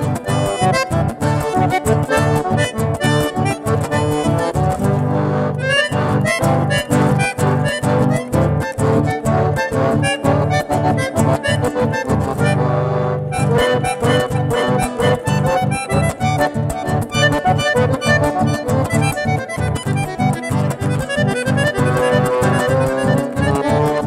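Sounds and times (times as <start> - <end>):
button accordion melody: 0.0 - 24.0
guitar accompaniment: 0.0 - 24.0
low rhythmic beat: 0.0 - 24.0.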